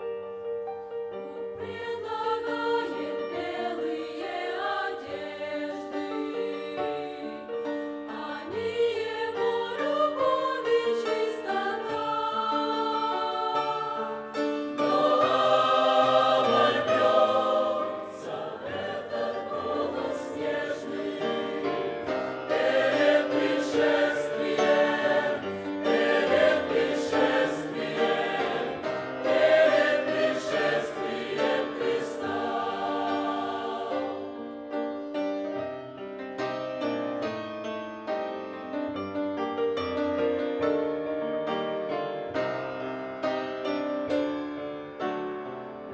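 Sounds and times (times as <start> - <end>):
choir singing a hymn: 0.9 - 35.5.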